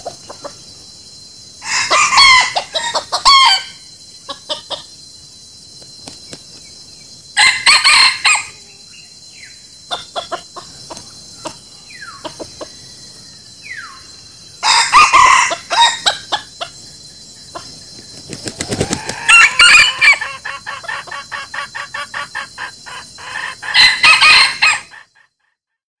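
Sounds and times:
rooster crowing: 1.6 - 3.8, 7.4 - 8.8, 14.6 - 16.4, 18.3 - 25.2.

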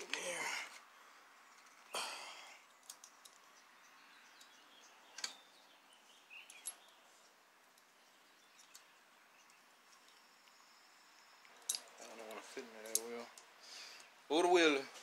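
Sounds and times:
small metal parts clicking: 2.6 - 3.5, 11.4 - 14.1.

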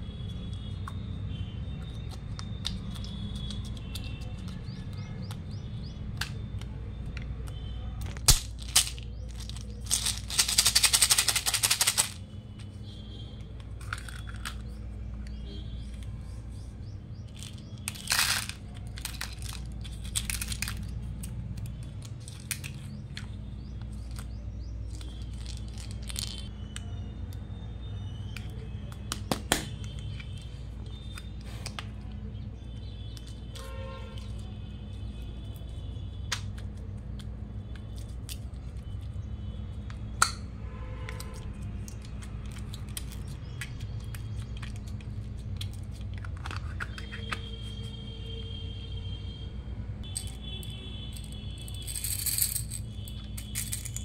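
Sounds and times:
plastic capsules clicking: 1.8 - 12.2, 13.4 - 15.3, 17.2 - 26.9, 39.9 - 40.5, 41.1 - 47.8, 50.0 - 54.0.

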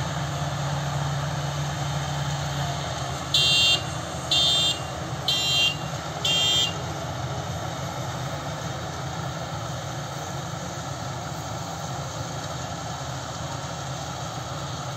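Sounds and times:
combine harvester droning: 0.0 - 14.9
loud electronic beeps: 3.4 - 6.8.

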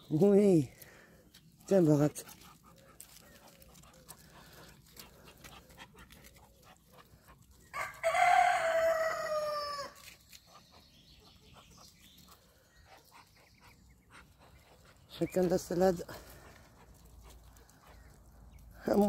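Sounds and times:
rooster crowing: 7.7 - 10.0.

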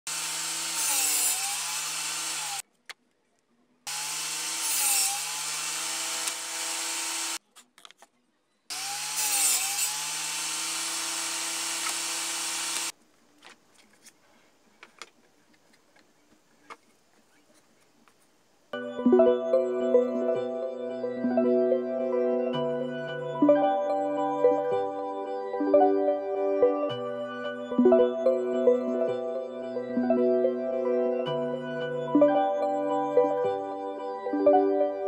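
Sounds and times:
table saw cutting plywood: 0.0 - 2.6, 3.9 - 7.4, 8.7 - 12.9.

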